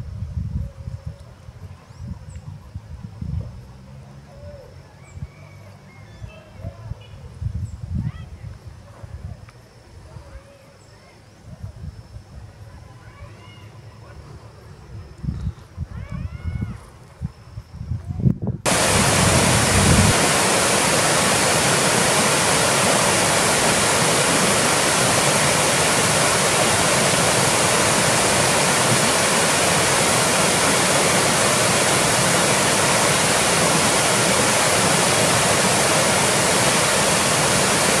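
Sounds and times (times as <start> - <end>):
waterfall rushing: 18.7 - 38.0.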